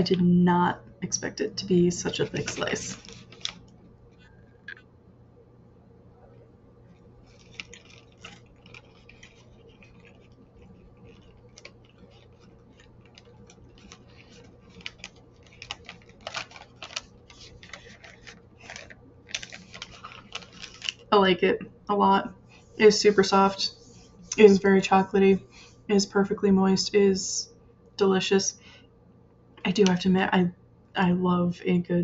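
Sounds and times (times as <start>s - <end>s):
plastic wrapper crinkling: 1.9s - 4.8s, 7.2s - 21.2s.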